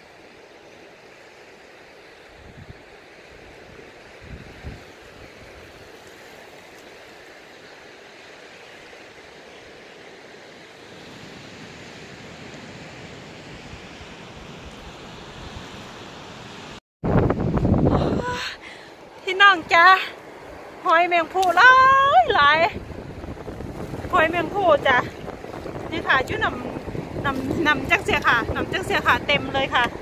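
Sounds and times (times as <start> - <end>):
small waves lapping on pebbles: 3.0 - 13.0.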